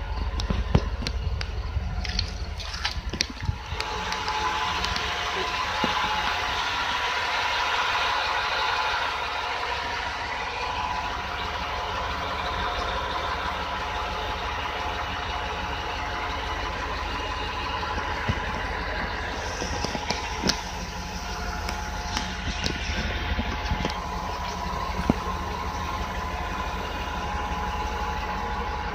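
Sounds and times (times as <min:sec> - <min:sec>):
truck engine idling: 0:00.0 - 0:28.9.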